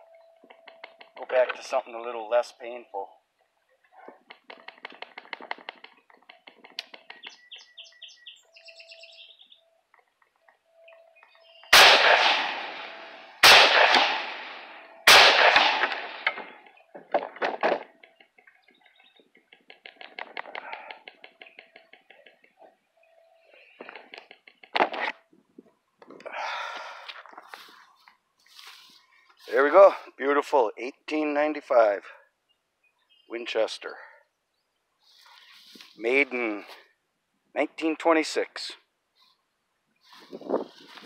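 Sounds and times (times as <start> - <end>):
small birds chirping: 1.8 - 11.8, 17.9 - 24.7, 32.1 - 37.0, 38.8 - 41.0
rifle shots echoing: 11.7 - 16.7.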